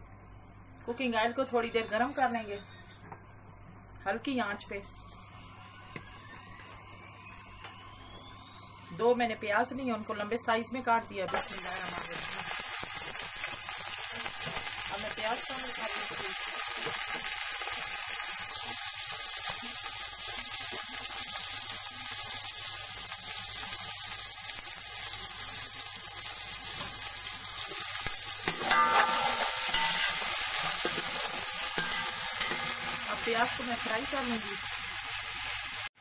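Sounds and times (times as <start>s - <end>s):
onions sizzling in oil: 11.3s - 36.0s.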